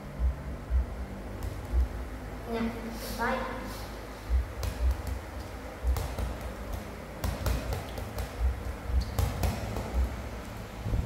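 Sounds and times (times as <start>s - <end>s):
ball bouncing on tiled floor: 1.3s - 1.9s, 4.3s - 10.5s.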